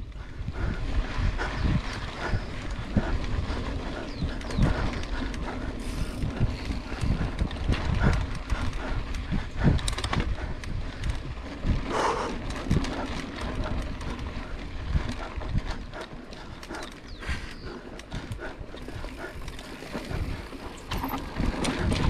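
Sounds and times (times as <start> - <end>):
tyre and wind rumble: 0.0 - 22.0
bike knocks and rattles: 18.3 - 22.0.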